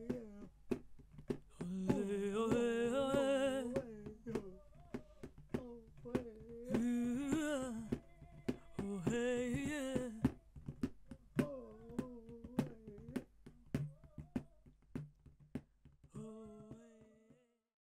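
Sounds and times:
wordless vocal melody: 0:01.6 - 0:10.3.

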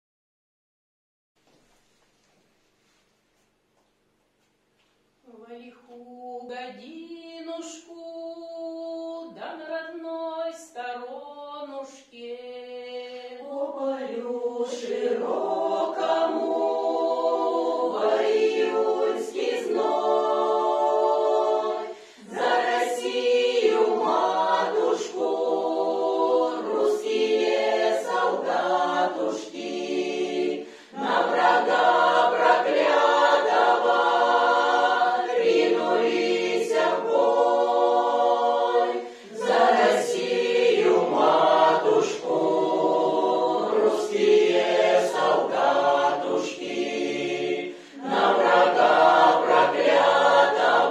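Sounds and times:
mixed choir singing a cappella: 0:06.3 - 0:50.9.

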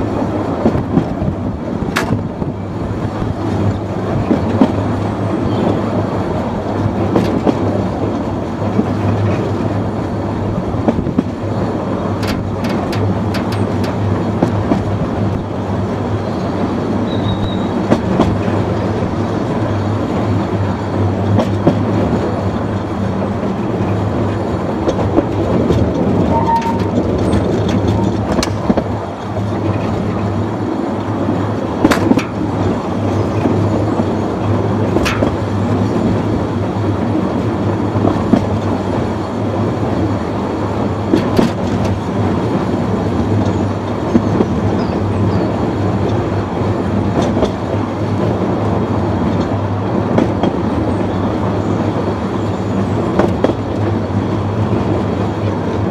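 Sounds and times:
locomotive hum and rumble: 0:00.0 - 0:55.9.

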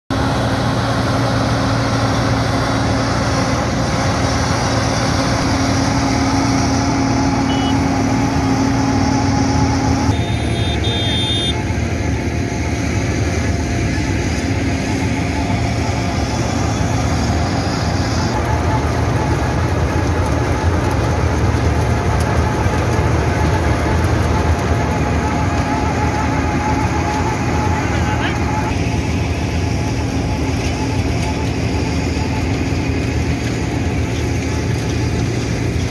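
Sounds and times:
diesel engine running under load: 0:00.1 - 0:35.9
milling drum grinding asphalt: 0:00.1 - 0:35.9
thin steady whine: 0:02.0 - 0:20.4.

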